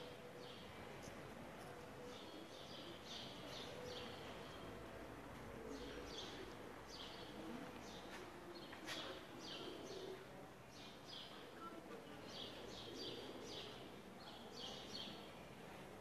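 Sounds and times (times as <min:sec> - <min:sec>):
low background murmur: 0:00.0 - 0:16.0.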